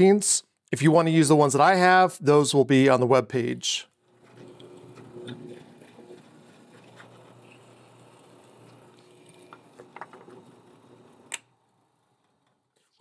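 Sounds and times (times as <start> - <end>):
drill press boring wood: 4.0 - 12.8.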